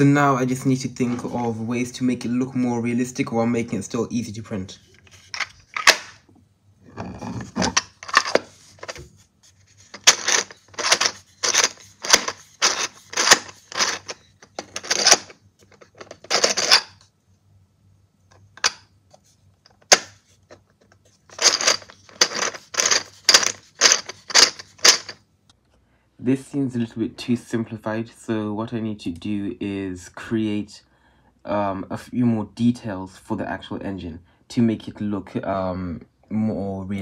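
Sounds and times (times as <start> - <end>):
plastic parts clicking and clacking: 5.2 - 6.2, 7.4 - 9.0, 9.8 - 17.0, 18.3 - 18.8, 19.6 - 25.2.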